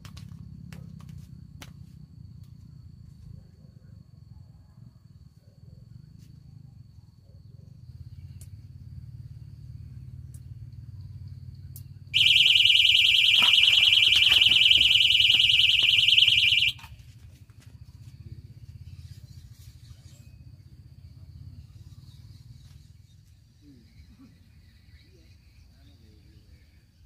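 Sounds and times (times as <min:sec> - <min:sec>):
fishing bite alarm beeping: 0:12.2 - 0:16.9.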